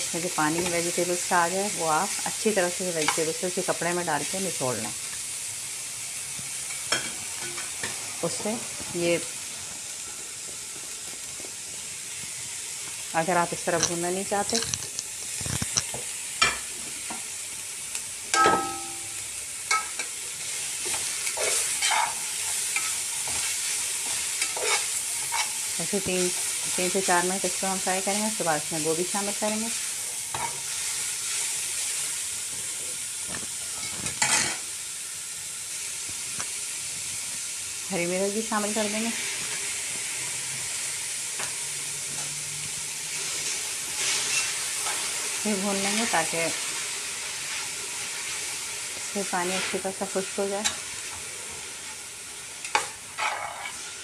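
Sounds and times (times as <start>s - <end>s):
vegetables sizzling in oil: 0.0s - 54.0s
spatula stirring and scraping: 19.7s - 26.7s, 43.2s - 45.3s, 52.6s - 54.0s
spatula scraping and knocking pot: 22.8s - 25.5s.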